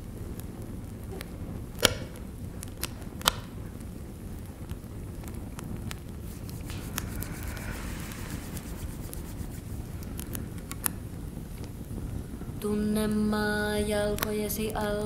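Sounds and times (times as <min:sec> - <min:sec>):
sharp cracks and snaps: 0:00.0 - 0:12.6, 0:13.9 - 0:14.7
steady low rumble: 0:00.0 - 0:15.0.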